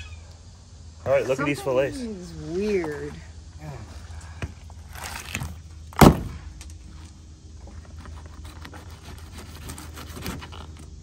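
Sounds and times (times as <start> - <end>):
loud thump: 5.9 - 6.5.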